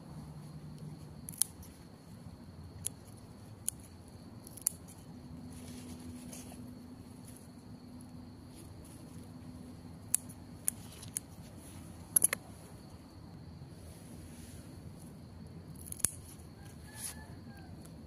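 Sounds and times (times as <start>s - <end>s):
scissors snipping stems: 1.3s - 1.8s, 15.8s - 16.4s.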